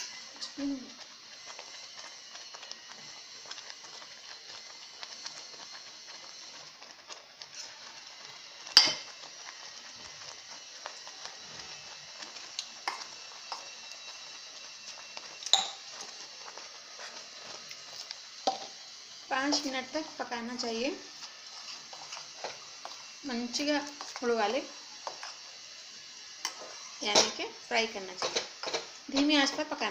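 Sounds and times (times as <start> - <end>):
oats sizzling in pot: 0.0 - 29.9
metal clinks against pot: 15.5 - 15.8.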